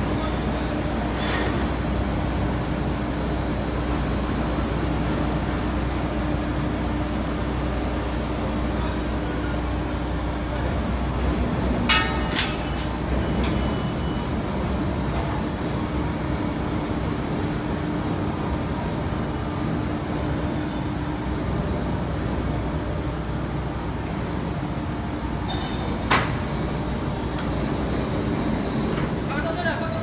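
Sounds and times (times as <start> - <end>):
machine mechanical drone: 0.0 - 30.0
sharp metallic clank: 11.9 - 13.9
faint hum tone: 18.0 - 23.4.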